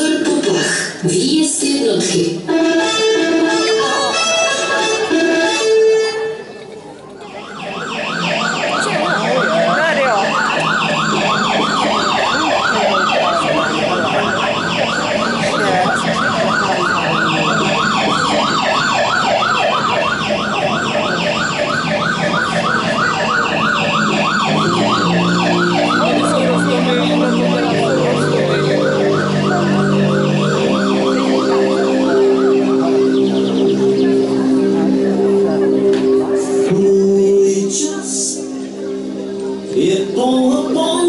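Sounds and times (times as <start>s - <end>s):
electronic siren yelping: 7.3s - 35.8s.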